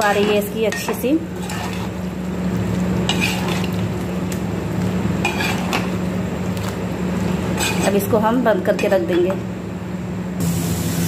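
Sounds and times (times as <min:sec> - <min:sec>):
wooden spatula scraping pan: 0:00.0 - 0:02.0, 0:03.1 - 0:03.8, 0:05.2 - 0:05.9, 0:07.5 - 0:08.1.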